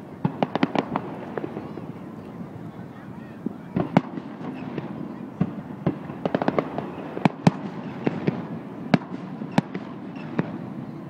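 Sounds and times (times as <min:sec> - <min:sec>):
fireworks bursting with sharp bangs: 0:00.0 - 0:02.7, 0:03.3 - 0:11.0.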